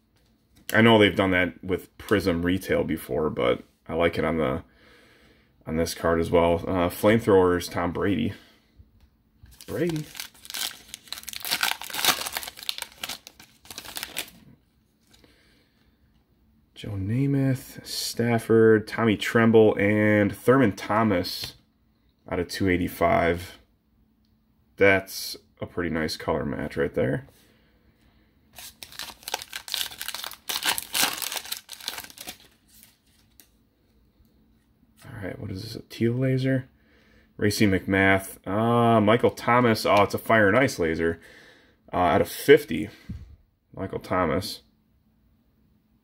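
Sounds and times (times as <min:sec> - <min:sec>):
foil wrapper crinkling and tearing: 0:09.5 - 0:14.4, 0:28.6 - 0:33.5.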